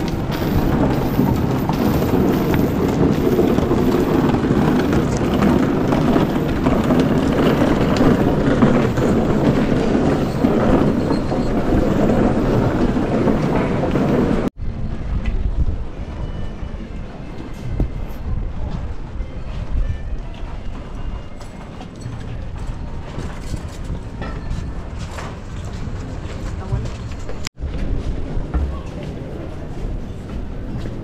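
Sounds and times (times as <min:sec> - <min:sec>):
wooden crosses dragged over stone: 0:00.0 - 0:14.4.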